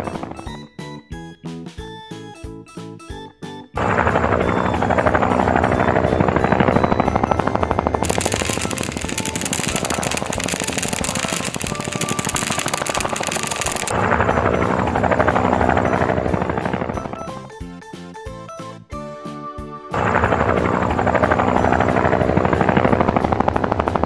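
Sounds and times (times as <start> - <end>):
cartoon helicopter rotor chopping: 8.0 - 13.9
hissing rush of pouring balls: 8.0 - 13.9
background music: 15.8 - 22.6.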